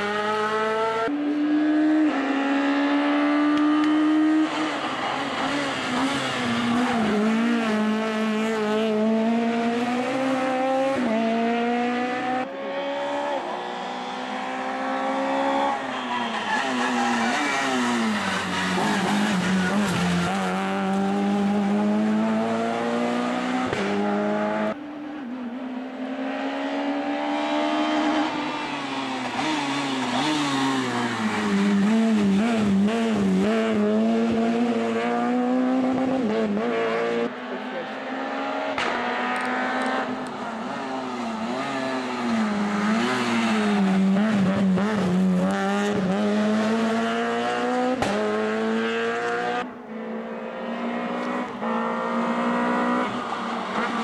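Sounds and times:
rally car engine revving: 0.0 - 54.0.

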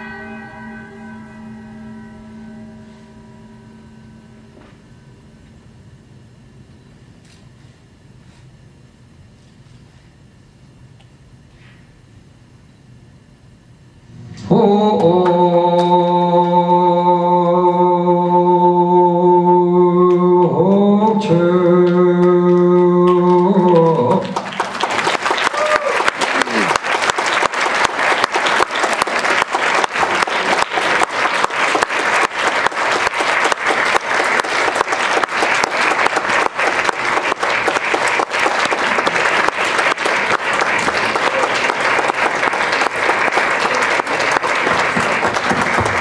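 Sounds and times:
person chanting a long note: 0.0 - 6.6, 14.2 - 27.4, 28.0 - 46.0
audience applause: 22.5 - 46.0.

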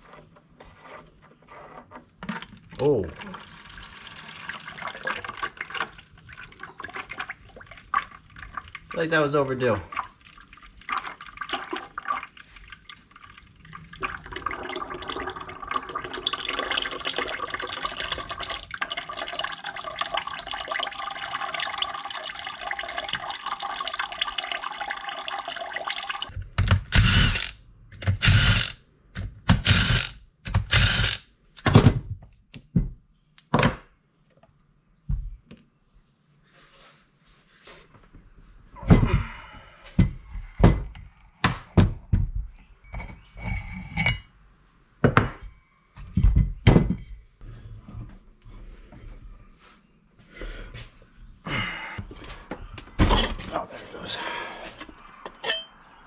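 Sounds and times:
oil pouring into bucket: 2.2 - 26.3.

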